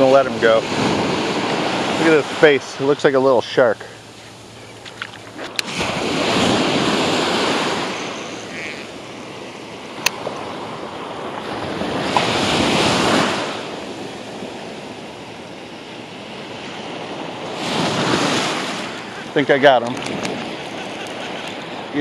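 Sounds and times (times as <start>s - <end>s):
surf washing up a beach: 0.0s - 22.0s
wind buffeting microphone: 16.0s - 22.0s.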